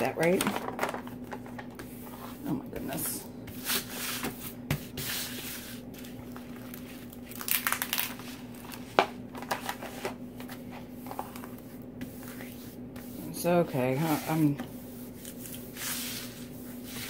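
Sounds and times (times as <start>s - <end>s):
plastic film rustling and crinkling: 5.8s - 11.6s.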